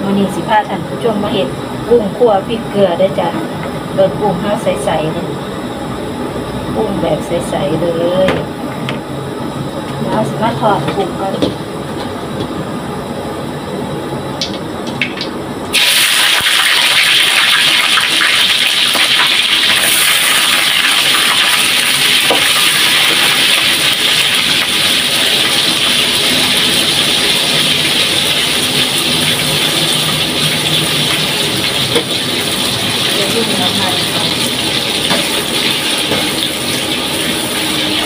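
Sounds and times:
shrimp sizzling in hot oil: 15.2s - 38.0s.

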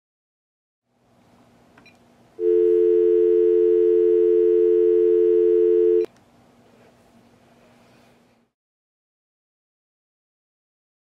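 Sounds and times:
phone dial tone: 2.4s - 6.1s.

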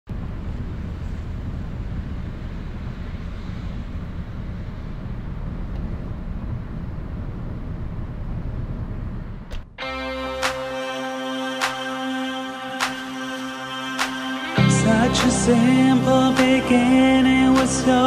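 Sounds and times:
city traffic rumble: 0.1s - 9.6s.

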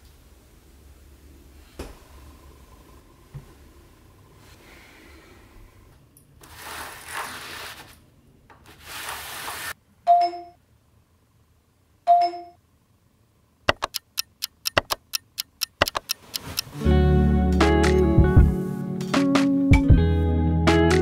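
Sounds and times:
rapid sharp clicks: 13.7s - 16.7s.

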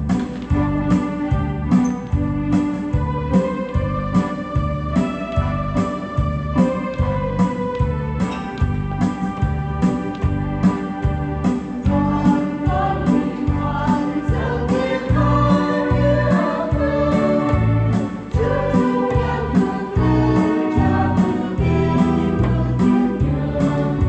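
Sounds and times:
electric keyboard accompaniment: 0.0s - 24.0s
steady bass beat: 0.0s - 24.0s
choir singing a hymn: 11.9s - 24.0s.

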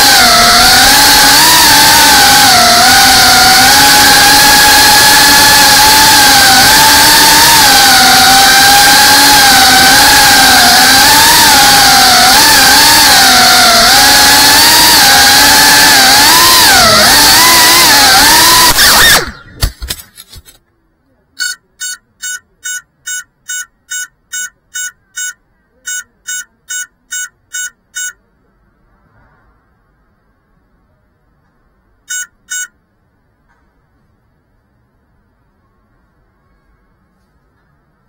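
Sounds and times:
drone motors whining: 0.0s - 19.7s, 32.1s - 32.7s
short electronic beeps: 21.4s - 28.3s, 32.1s - 32.8s.

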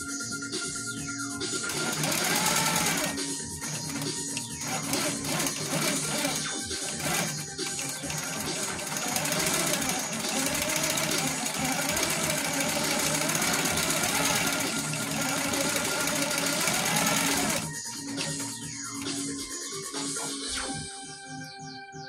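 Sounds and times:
quilting machine needle rattle: 1.7s - 18.5s.

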